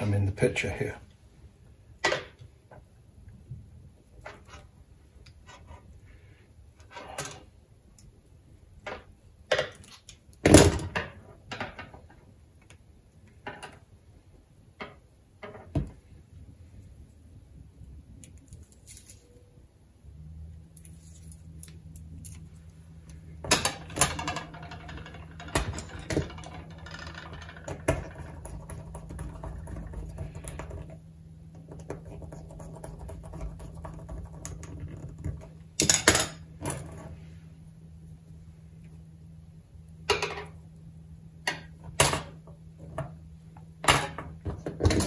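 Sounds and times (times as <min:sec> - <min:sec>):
wire clicking and rattling on a table: 0:20.7 - 0:37.2.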